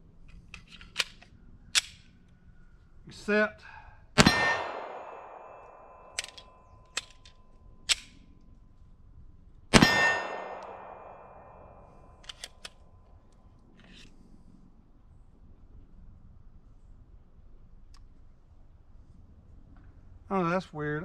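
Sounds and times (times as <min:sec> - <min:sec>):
sharp metallic pistol clicks: 0:00.2 - 0:02.4, 0:04.2 - 0:08.5, 0:09.7 - 0:14.1
pistol shot with echo: 0:04.2 - 0:07.2, 0:09.7 - 0:12.2.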